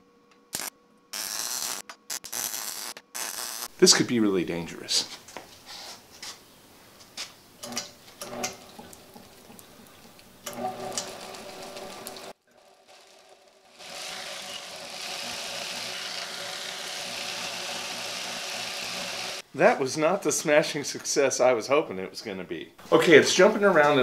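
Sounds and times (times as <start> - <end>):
belt grinder motor whirring: 10.5 - 12.0, 12.8 - 19.4.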